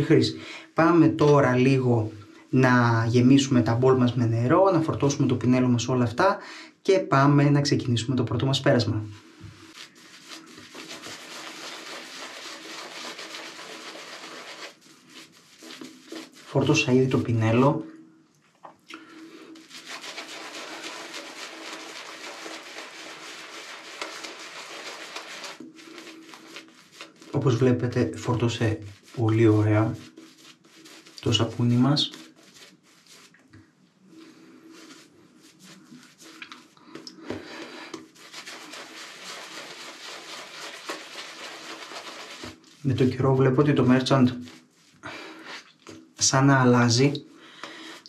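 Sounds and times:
shaving brush rubbing lather: 9.2 - 17.8, 19.2 - 48.0.

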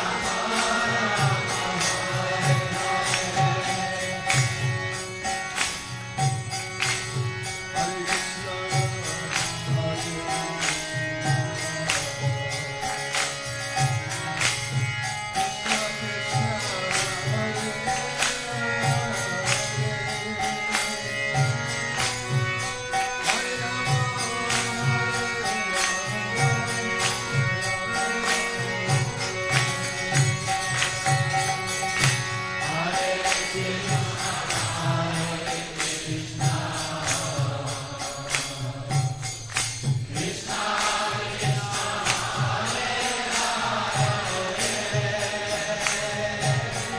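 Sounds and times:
devotional chant music: 0.0 - 46.9
jingling percussion: 0.0 - 46.9
people singing: 0.0 - 46.9
steady drum beat: 39.8 - 45.4.

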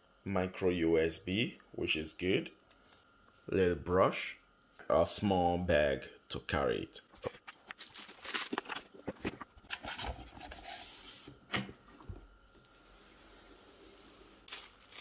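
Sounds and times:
plastic wrap crinkling: 7.2 - 10.1, 14.4 - 15.0.

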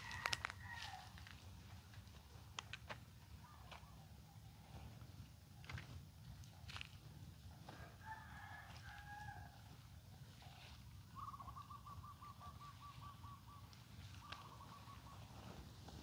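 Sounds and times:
distant bird calls: 3.2 - 4.8, 10.2 - 16.0.

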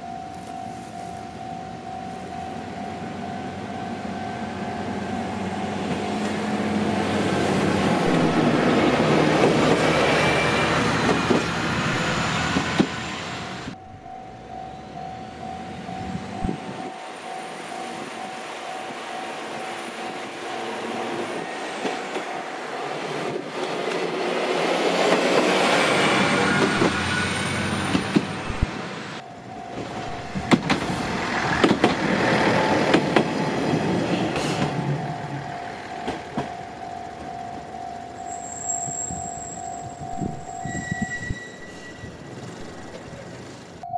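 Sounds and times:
crossing warning bell: 0.0 - 43.9
diesel railcar engine running: 0.0 - 43.9
wheels on rails: 0.3 - 43.9
wheels clicking over rail joints: 29.4 - 41.1.

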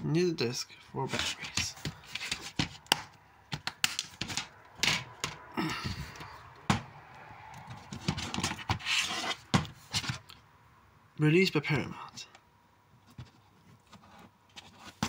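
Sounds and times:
plastic cases clicking and knocking: 1.2 - 5.5, 7.6 - 8.8.

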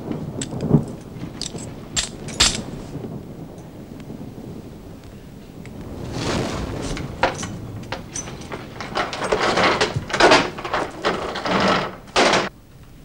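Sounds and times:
rushes of noise: 4.2 - 11.3
wooden door rattling and knocking: 7.0 - 12.5.

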